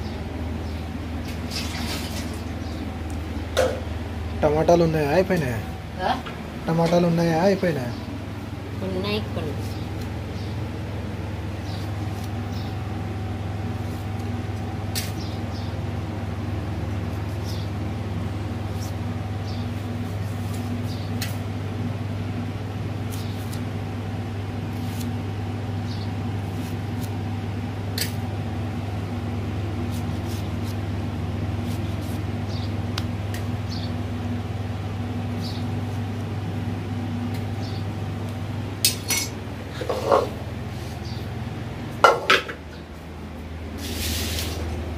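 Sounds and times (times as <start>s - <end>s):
steady low hum: 0.0s - 44.9s
knife cutting tomatoes: 29.8s - 30.9s, 31.6s - 32.3s.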